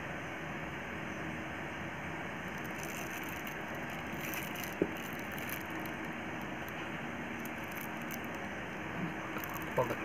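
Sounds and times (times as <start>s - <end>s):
steady background hiss: 0.0s - 10.0s
plastic packaging crinkling: 2.5s - 8.5s, 9.3s - 10.0s.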